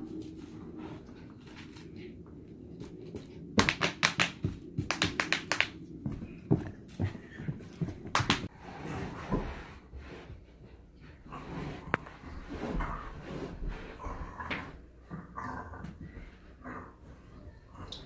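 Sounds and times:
sharp taps and knocks: 0:03.6 - 0:06.7.

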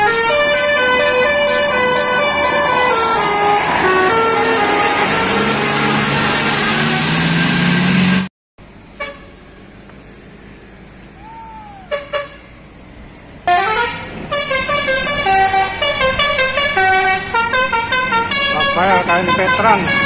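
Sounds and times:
musical bus air horn: 0:00.0 - 0:07.3, 0:09.0 - 0:09.4, 0:11.3 - 0:12.6, 0:13.4 - 0:20.0.

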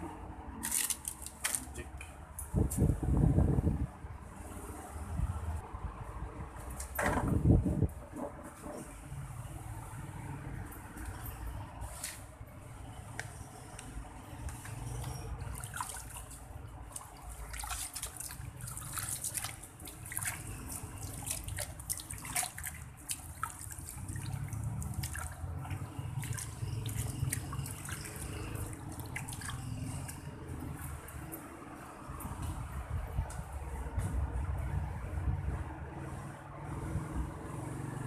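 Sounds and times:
water splashing in a plastic basin: 0:14.6 - 0:31.2.

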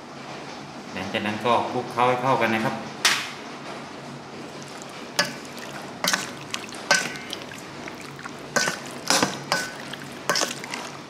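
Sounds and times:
meat turned in marinade: 0:04.4 - 0:11.0
metal spoon clinking bowl: 0:04.6 - 0:11.0.

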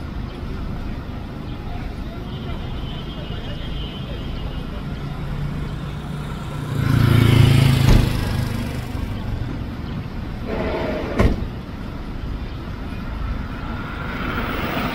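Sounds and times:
street traffic noise: 0:00.0 - 0:14.9
tailgate slamming shut: 0:10.7 - 0:11.6.

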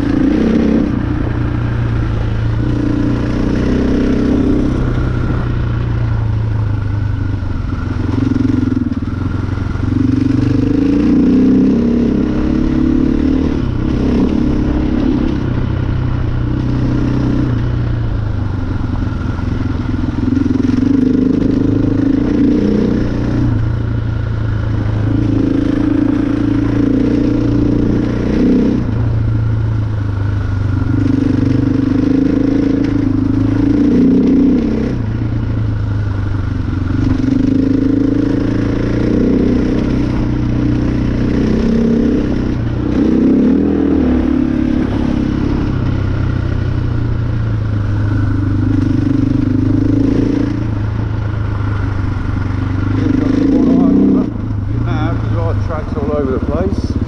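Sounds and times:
dirt bike engine revving: 0:00.0 - 0:06.6, 0:07.4 - 0:29.2, 0:30.2 - 0:57.0.

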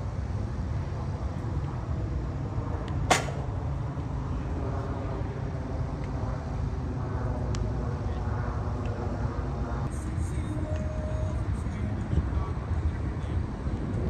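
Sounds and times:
low background rumble: 0:00.0 - 0:14.0
bat cracking on ball: 0:03.1 - 0:03.5.

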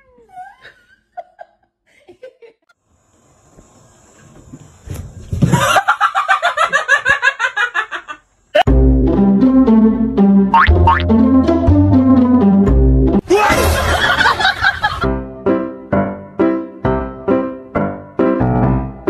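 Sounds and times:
person laughing hard: 0:05.5 - 0:08.7, 0:13.2 - 0:15.1.

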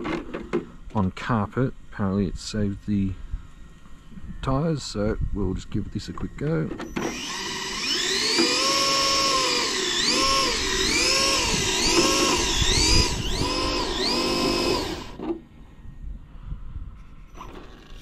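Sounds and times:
electric motor whining: 0:06.8 - 0:15.2.

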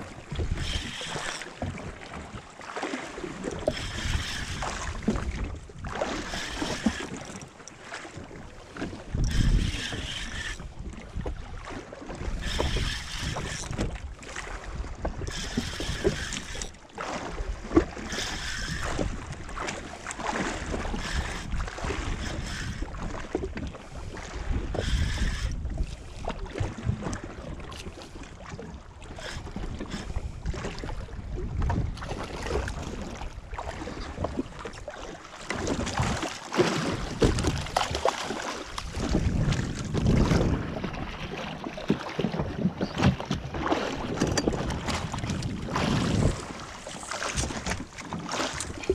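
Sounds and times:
waves slapping against hull: 0:00.0 - 0:48.9
wind buffeting microphone: 0:08.3 - 0:16.7, 0:17.6 - 0:27.7, 0:29.0 - 0:34.7, 0:35.6 - 0:38.0, 0:38.8 - 0:41.2, 0:42.3 - 0:48.9.

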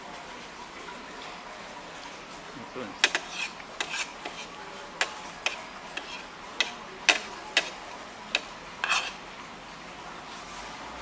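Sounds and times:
cutlery clinking against a plate: 0:03.0 - 0:09.2.

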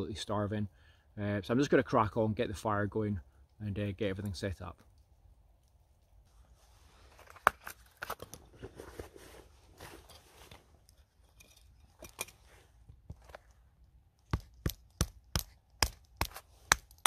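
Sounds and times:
handling and scuffing: 0:06.8 - 0:13.6.

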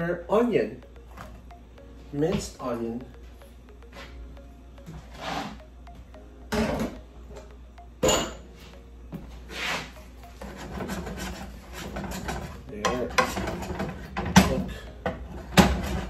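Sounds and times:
wooden spatula scraping frying pan: 0:09.5 - 0:12.6.

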